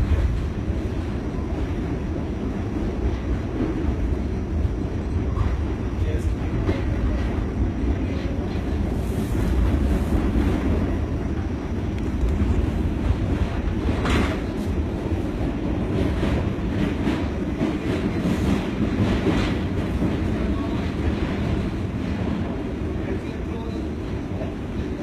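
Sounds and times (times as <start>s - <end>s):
subway train rumbling: 0.0s - 25.0s
train car rattling: 0.0s - 25.0s.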